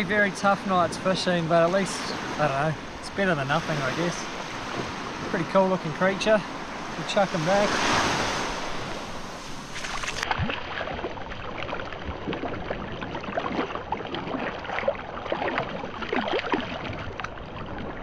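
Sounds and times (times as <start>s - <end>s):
surf washing over sand: 0.0s - 11.1s.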